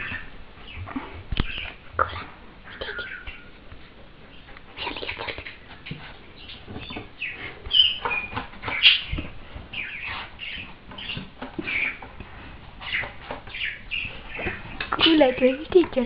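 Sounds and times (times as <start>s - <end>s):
parrot squawking and chattering: 1.4s - 3.5s, 4.8s - 5.7s.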